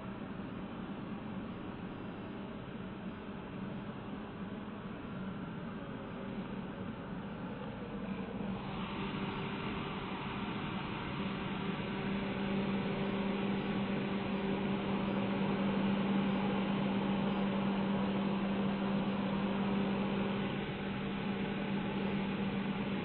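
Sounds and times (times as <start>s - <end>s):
motor hum: 7.6s - 23.0s
hair dryer blowing air: 8.4s - 23.0s.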